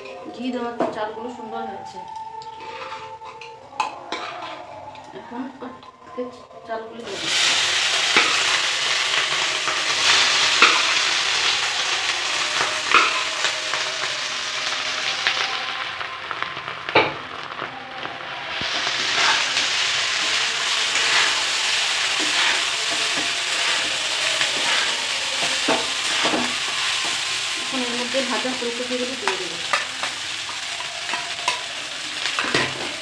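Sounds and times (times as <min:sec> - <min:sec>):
rice sizzling in hot fat: 0:02.5 - 0:04.5, 0:07.0 - 0:33.0
spatula stirring rice in pan: 0:07.2 - 0:13.5, 0:17.4 - 0:28.6, 0:29.2 - 0:33.0.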